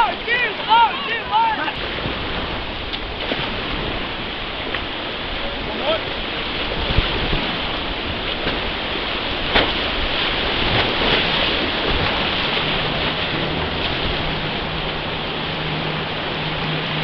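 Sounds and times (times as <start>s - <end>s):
whitewater rapids rushing: 0.0s - 17.0s
sharp hits on raft: 9.4s - 9.9s.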